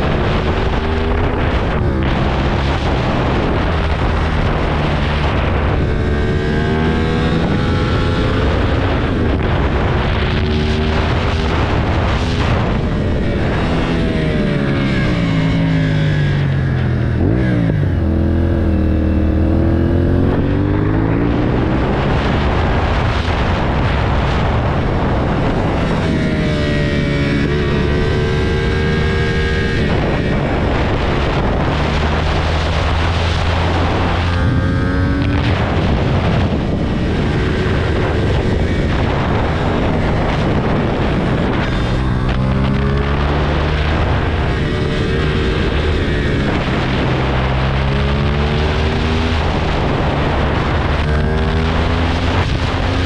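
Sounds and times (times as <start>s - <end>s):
motorcycle engine revving: 0.0s - 53.0s
wind noise: 0.0s - 53.0s.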